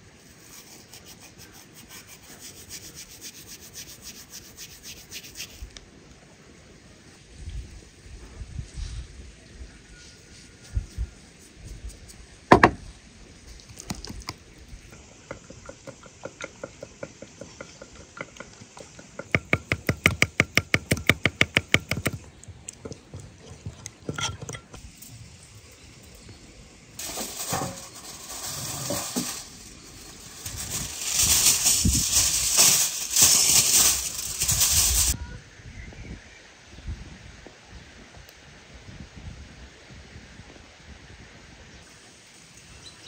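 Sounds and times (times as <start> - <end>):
aluminium foil crinkling: 27.0 - 35.2.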